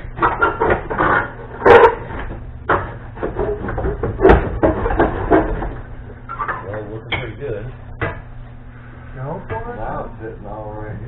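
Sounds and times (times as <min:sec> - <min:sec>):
metal clunks and knocks: 0:01.7 - 0:05.8.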